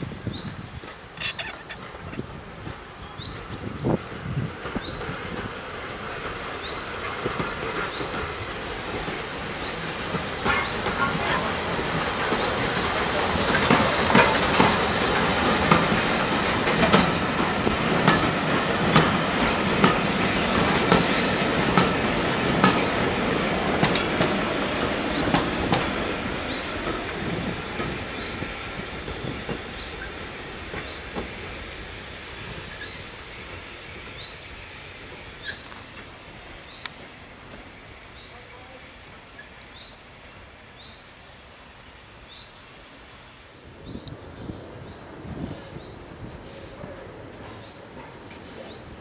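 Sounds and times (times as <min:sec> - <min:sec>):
steam train passing: 0:00.0 - 0:49.0
steam hissing: 0:01.8 - 0:49.0
wheels clicking over rail joints: 0:04.4 - 0:31.8.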